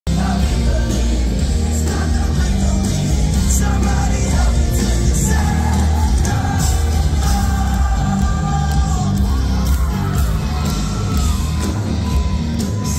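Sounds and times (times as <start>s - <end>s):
man singing: 0.1s - 10.2s
rock band playing live: 0.1s - 12.9s.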